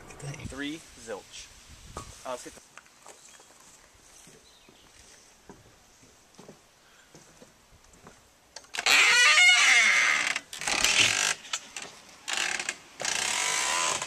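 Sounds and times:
footsteps on grass: 1.8s - 8.3s
rustling and knocking: 3.0s - 8.2s
wooden door creaking open: 8.7s - 14.0s.

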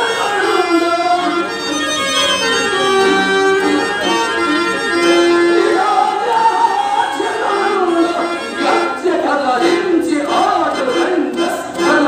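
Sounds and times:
man singing long notes: 0.0s - 1.8s, 5.1s - 12.0s
harmonium: 0.0s - 12.0s.

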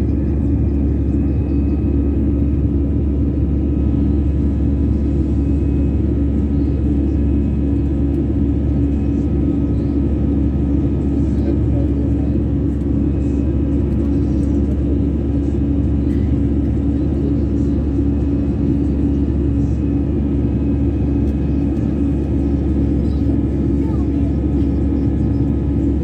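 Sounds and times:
jet engines rumbling in cabin: 0.0s - 26.0s.

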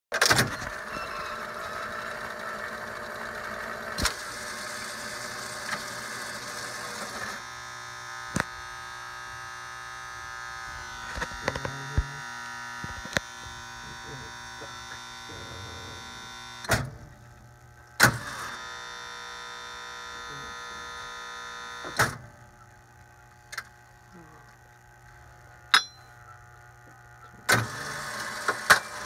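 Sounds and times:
jukebox motors whirring: 0.2s - 29.0s
brief low buzz: 7.4s - 17.2s.

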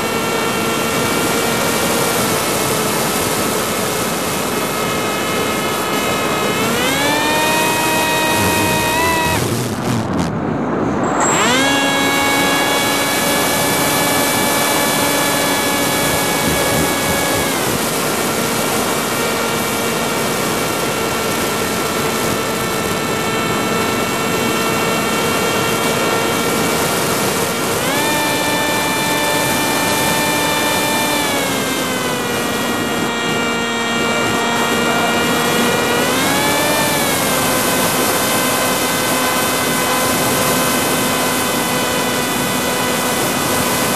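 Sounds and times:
drone motors whining: 4.1s - 43.9s
rush of air: 8.9s - 11.8s.

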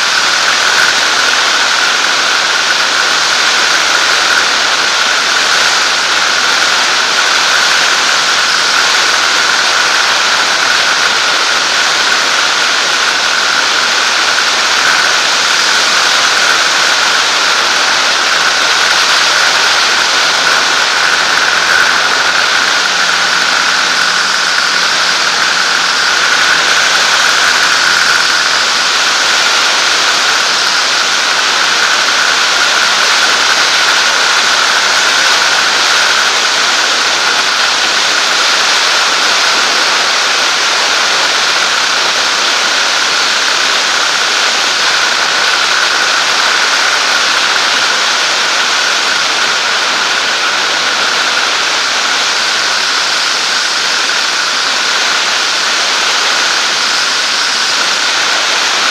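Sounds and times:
light aircraft engine and airflow: 0.0s - 58.9s.

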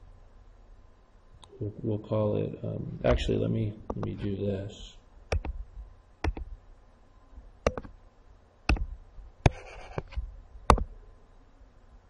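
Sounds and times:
computer mouse clicks: 5.3s - 5.6s, 6.2s - 6.5s, 7.6s - 7.9s, 8.7s - 10.9s.

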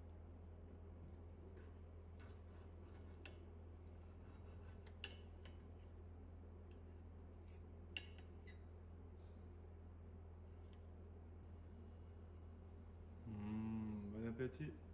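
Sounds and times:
low steady hum: 0.0s - 14.9s
cutlery scraping a plate: 4.1s - 6.1s.

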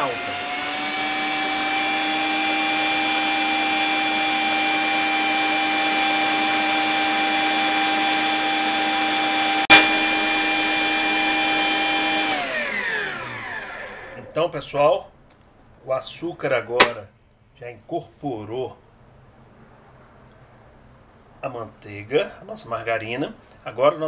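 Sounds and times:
stand mixer motor whine: 0.0s - 14.2s
sharp click: 16.8s - 17.0s.

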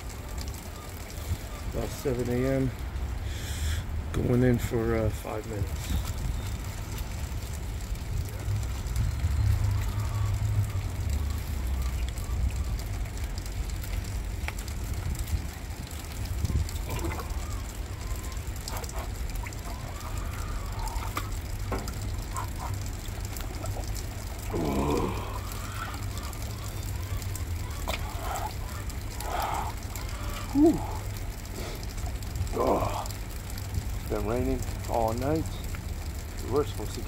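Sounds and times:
water sloshing in a metal tank: 4.1s - 37.0s
wind buffeting microphone: 14.3s - 24.6s.

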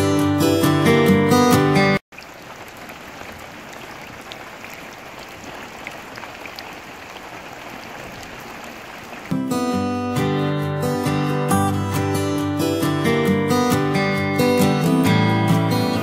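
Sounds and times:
strummed acoustic guitar music: 0.0s - 2.0s, 9.3s - 16.0s
heavy rain into standing water: 2.0s - 10.0s.

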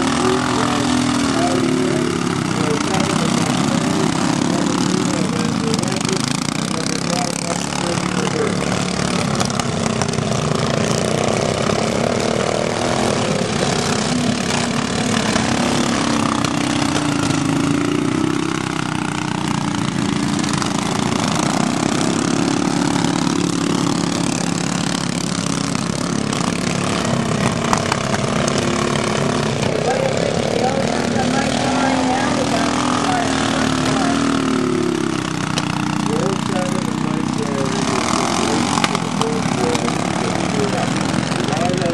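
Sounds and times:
broad rushing noise: 0.0s - 41.9s
lawn mower engines racing: 0.0s - 41.9s.

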